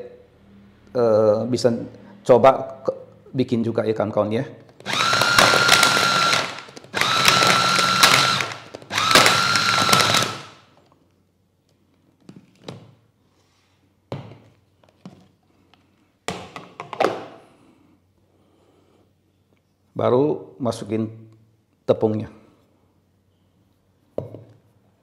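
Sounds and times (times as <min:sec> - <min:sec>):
food chopper motor whine: 0:04.8 - 0:10.7.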